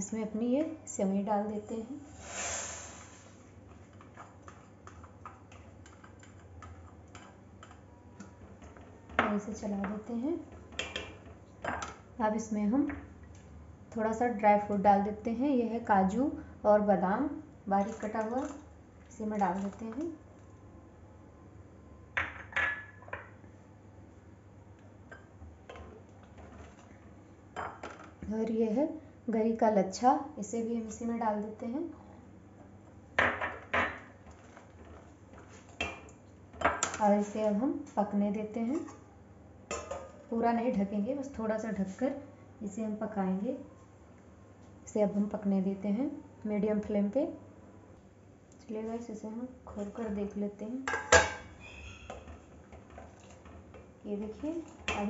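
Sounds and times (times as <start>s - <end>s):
vermicelli pouring into pot: 2.0s - 3.5s
spatula scraping steel pot: 51.5s - 53.5s.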